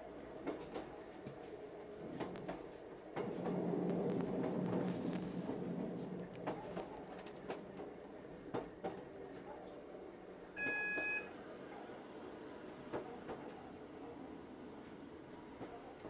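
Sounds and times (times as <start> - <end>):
train carriage running noise: 0.0 - 16.0
two-tone electronic beep: 10.6 - 11.3.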